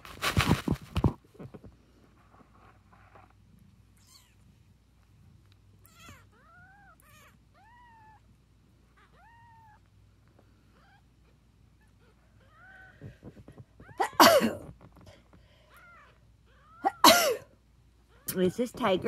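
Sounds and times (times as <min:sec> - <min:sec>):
kitten mewing: 0:11.8 - 0:15.0, 0:15.7 - 0:17.4.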